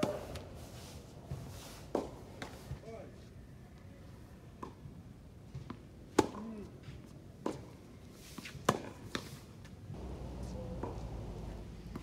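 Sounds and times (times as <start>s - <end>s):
racket striking tennis ball: 10.0s - 12.0s.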